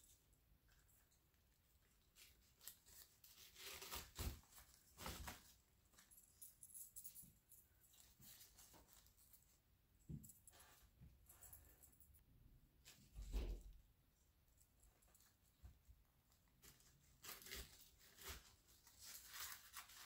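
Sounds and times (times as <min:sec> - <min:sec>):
flower stems rustling: 0:00.7 - 0:06.2, 0:16.2 - 0:20.0.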